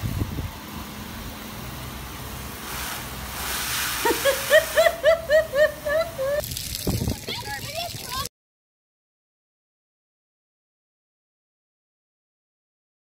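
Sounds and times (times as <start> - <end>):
hose spraying water on glass: 1.6 - 8.3
child giggling: 4.0 - 6.4.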